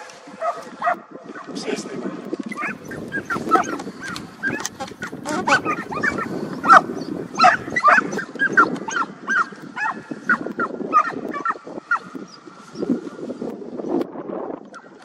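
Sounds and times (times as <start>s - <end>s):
dogs yelping: 2.5s - 12.1s.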